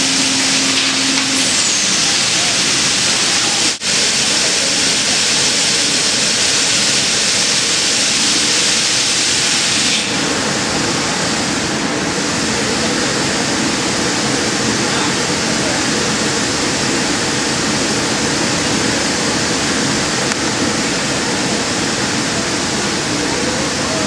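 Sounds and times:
router machine rushing hiss: 0.0s - 11.8s.

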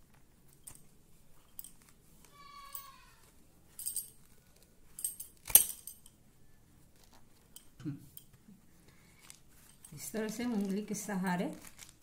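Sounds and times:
ringing clink: 2.6s - 3.0s, 3.8s - 4.2s.

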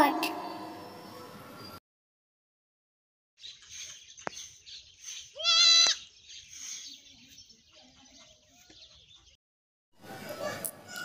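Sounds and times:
goat bleating: 5.4s - 6.0s.

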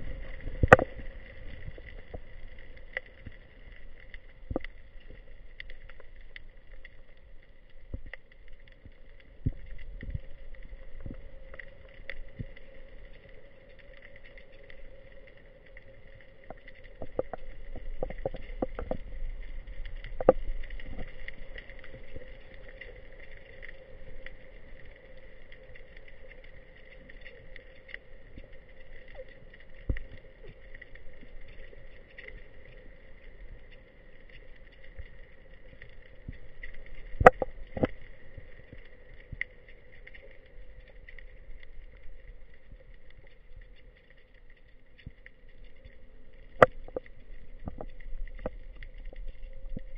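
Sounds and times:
underwater clicks and knocks: 0.0s - 3.4s, 4.4s - 6.0s, 16.4s - 22.0s, 36.2s - 40.2s, 45.0s - 49.9s
underwater hum: 0.0s - 49.9s.

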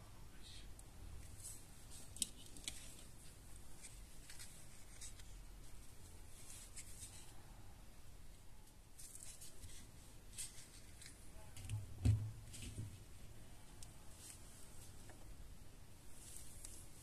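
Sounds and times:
low steady hum: 0.0s - 17.0s
hands rustling and scraping plastic: 1.2s - 7.4s, 9.0s - 15.3s.

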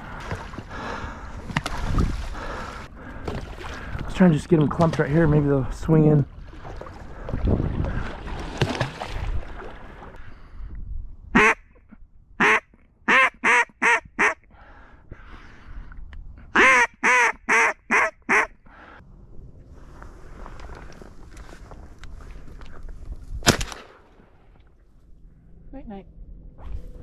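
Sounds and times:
water sloshing and splashing: 0.0s - 10.2s
duck call quacks: 11.4s - 11.7s, 12.4s - 14.4s, 16.6s - 18.6s.

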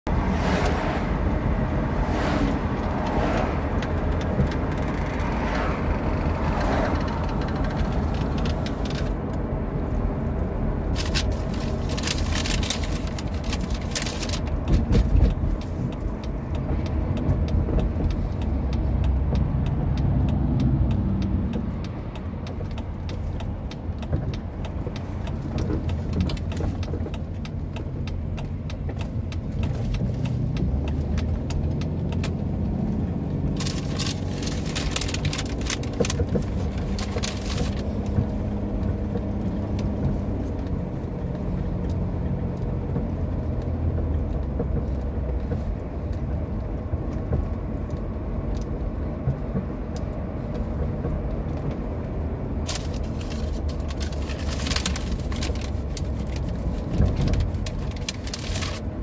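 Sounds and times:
car engine and tyre rumble: 0.0s - 59.0s
sharp clicks and rattles: 2.7s - 59.0s.

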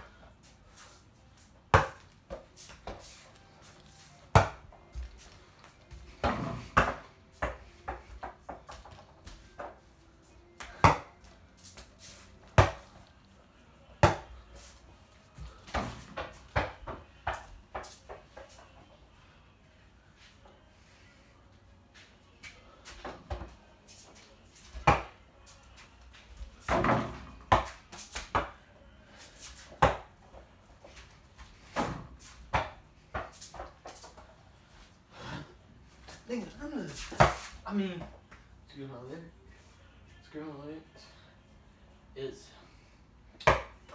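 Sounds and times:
person moving on floor: 0.4s - 10.4s.

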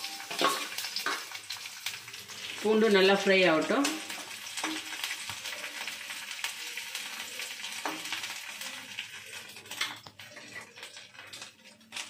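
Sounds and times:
garlic sizzling in oil: 0.0s - 12.0s
spatula scraping pan: 6.9s - 12.0s.

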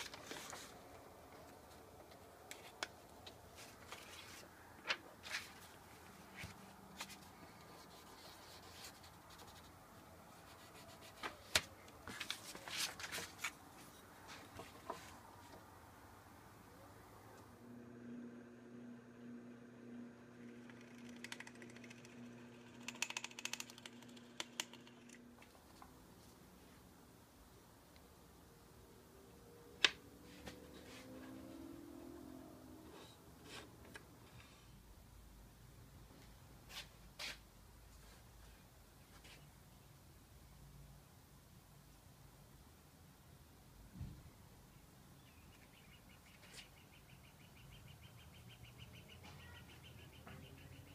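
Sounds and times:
paper rustles and scrapes: 0.0s - 1.7s, 3.5s - 9.7s, 10.5s - 15.2s
paper rubbing and sliding: 0.0s - 1.8s, 2.5s - 9.8s, 10.5s - 15.2s.

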